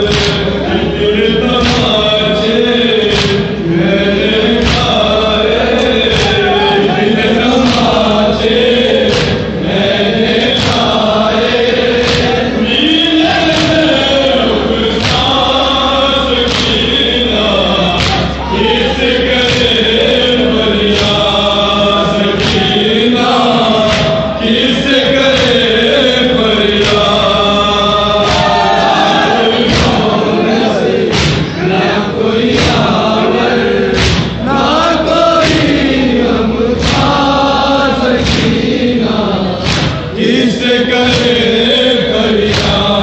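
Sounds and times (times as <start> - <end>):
men chanting in unison: 0.0 - 43.0
hands slapping on chests: 0.1 - 0.4, 3.1 - 3.5, 7.6 - 8.0, 9.0 - 9.5, 12.0 - 12.4, 16.4 - 17.0, 18.0 - 18.3, 23.6 - 24.2, 31.1 - 31.5, 36.8 - 37.2, 39.6 - 40.1.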